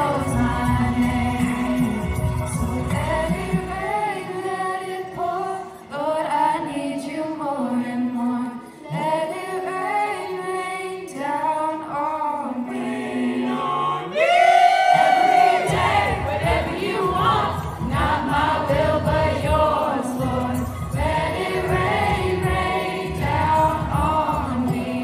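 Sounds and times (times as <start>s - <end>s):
choir singing unaccompanied: 0.0s - 7.0s, 12.4s - 25.0s.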